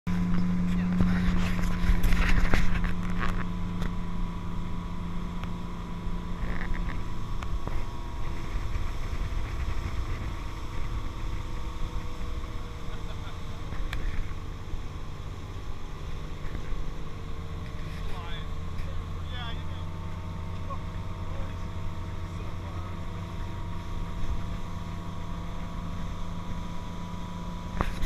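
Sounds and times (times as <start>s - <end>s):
motorboat engine running: 0.1s - 28.0s
wind noise: 6.4s - 12.7s.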